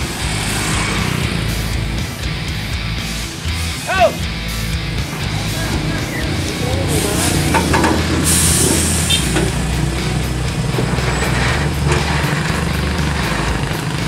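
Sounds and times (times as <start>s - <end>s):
heavy truck engine running: 0.0s - 14.0s
short burst of hissing: 8.2s - 9.3s.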